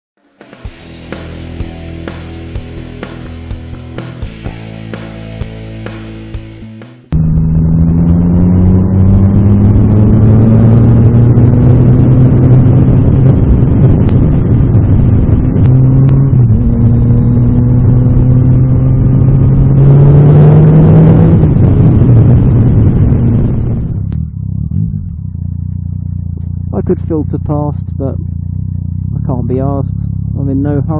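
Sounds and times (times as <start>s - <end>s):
motorcycle engine accelerating: 0.4s - 30.9s
steady rush of noise: 0.6s - 24.2s.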